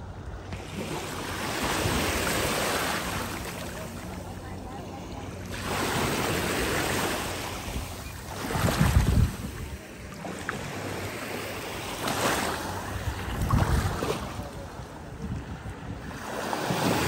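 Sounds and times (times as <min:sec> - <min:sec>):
sea waves washing on beach: 0:00.4 - 0:17.0
wind on microphone: 0:07.6 - 0:10.2, 0:12.9 - 0:17.0.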